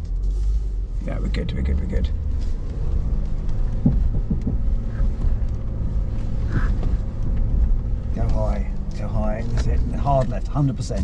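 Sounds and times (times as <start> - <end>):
pickup truck engine running low: 0.0 - 11.0
dull knocks: 3.4 - 5.7.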